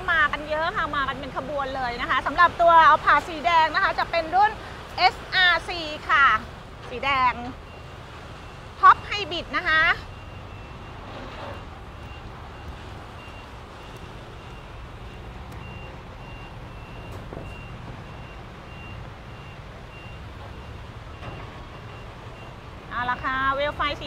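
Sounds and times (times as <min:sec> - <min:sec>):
truck low rumble: 0:00.0 - 0:24.0
reversing alarm beeping: 0:07.0 - 0:24.0.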